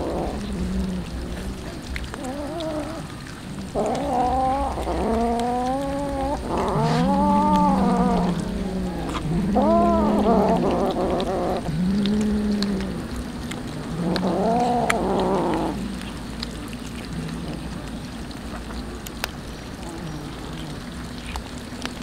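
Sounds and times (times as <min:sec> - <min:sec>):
cats chewing: 0:00.0 - 0:22.0
cat meowing: 0:03.8 - 0:11.7.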